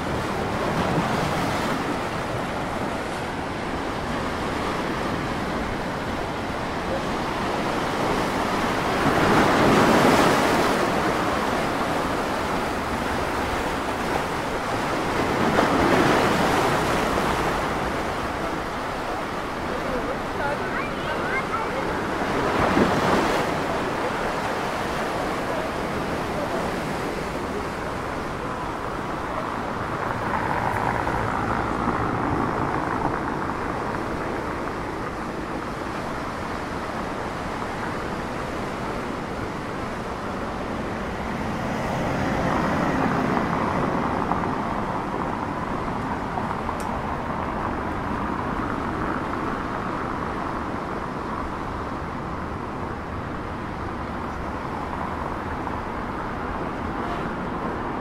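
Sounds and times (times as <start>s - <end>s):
road traffic passing: 0.0s - 58.0s
surf washing against rocks: 0.0s - 58.0s
wind on microphone: 0.0s - 58.0s.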